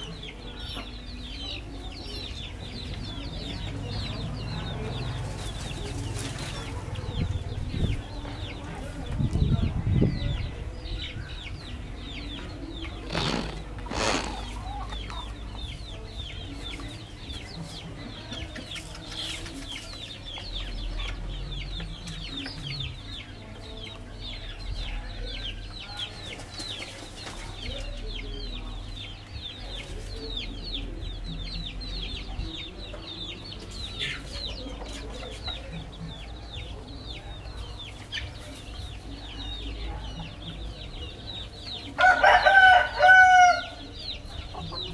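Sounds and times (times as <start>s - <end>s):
chicks cheeping: 0.0s - 44.9s
hens clucking: 11.4s - 44.9s.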